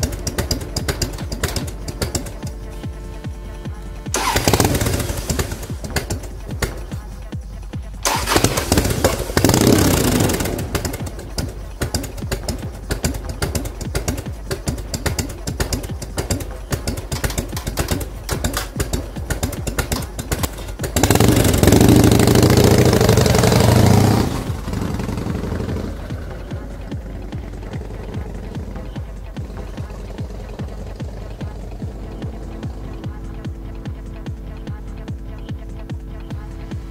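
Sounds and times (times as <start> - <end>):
motorcycle pulling away: 0.0 - 7.4, 8.0 - 35.1
motorcycle engine idling: 0.0 - 36.9
motorcycle engine revving: 0.0 - 36.9.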